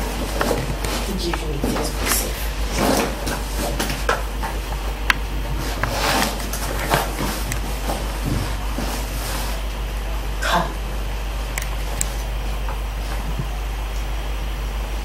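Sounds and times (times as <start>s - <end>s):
steady low hum: 0.0s - 15.0s
sharp clicks: 11.5s - 12.2s.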